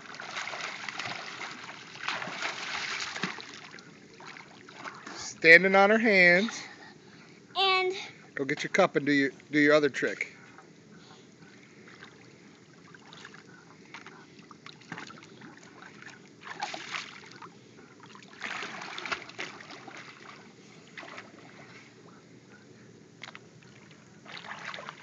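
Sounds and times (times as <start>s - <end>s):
pool water splashing: 0.0s - 6.8s, 11.5s - 22.1s, 23.2s - 25.0s.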